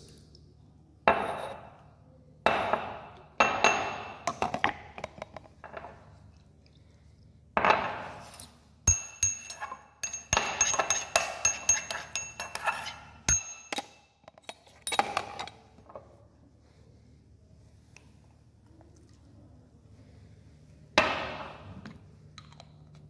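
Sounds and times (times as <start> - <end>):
pestle clinking in ceramic mortar: 7.7 - 15.5.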